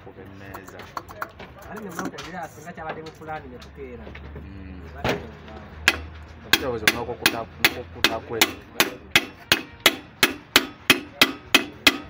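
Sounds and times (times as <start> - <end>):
hammer striking with ringing blows: 5.8 - 12.0.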